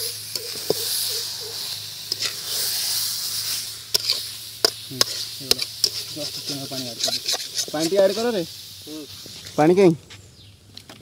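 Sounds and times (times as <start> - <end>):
chicken sizzling in pan: 0.0 - 9.9
metal spatula scraping pan: 2.1 - 2.4, 3.9 - 8.2.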